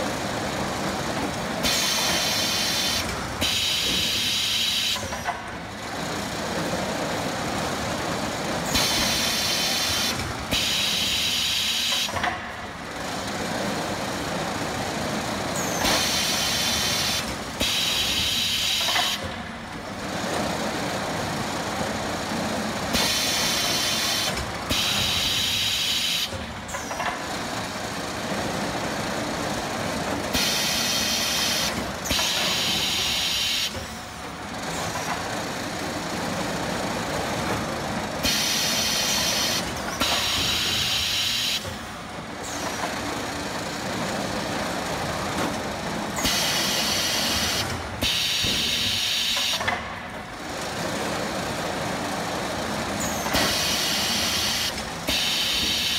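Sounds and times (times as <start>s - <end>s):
pneumatic hissing bursts: 1.6s - 5.2s, 8.7s - 12.2s, 15.6s - 19.3s, 22.9s - 26.8s, 30.3s - 33.8s, 38.2s - 41.8s, 46.2s - 49.7s, 53.0s - 55.9s.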